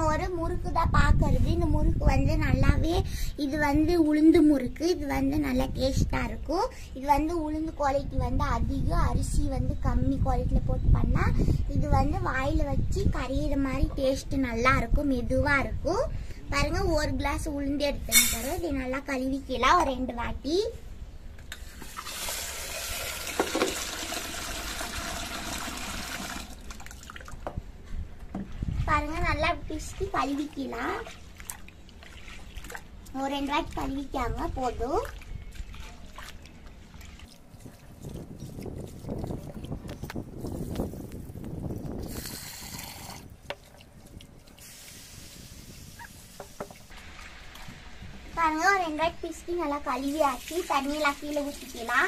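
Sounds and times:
water poured off: 21.8 - 27.4, 41.9 - 47.7
water pouring into metal pot: 21.9 - 27.2.

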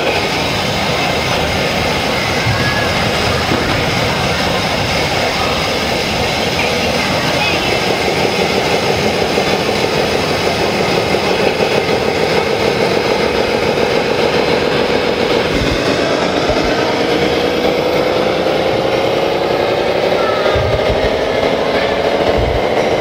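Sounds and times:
rc truck engine sound: 0.0 - 23.0
whine rising in pitch: 15.1 - 23.0.

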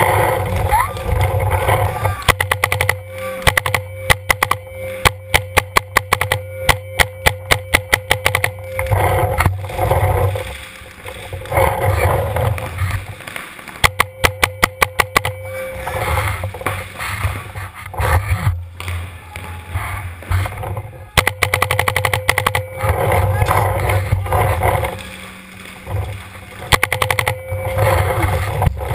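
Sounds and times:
paintball marker rapid shots: 2.2 - 8.5, 21.2 - 22.6, 26.7 - 27.4.

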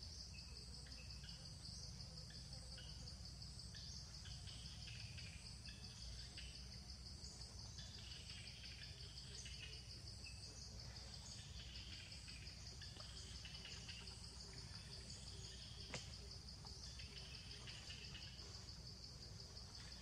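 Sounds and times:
pulsing insect drone: 0.0 - 20.0.

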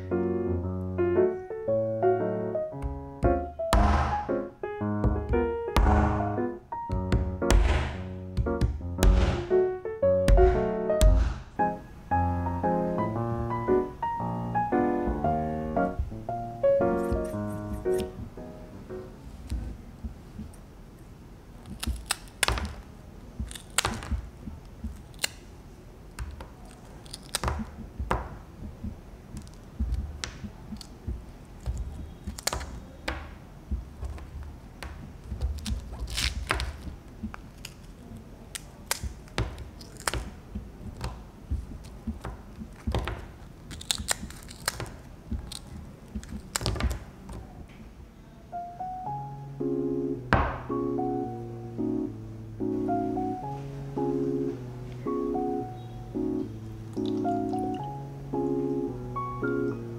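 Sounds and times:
dull thuds of pieces snapping: 2.8 - 4.4, 5.0 - 9.6, 10.3 - 11.6, 21.6 - 25.5, 26.1 - 47.4
candy slab cracking: 21.6 - 27.8, 29.3 - 33.3, 34.0 - 41.2, 41.8 - 47.4, 56.9 - 57.9.

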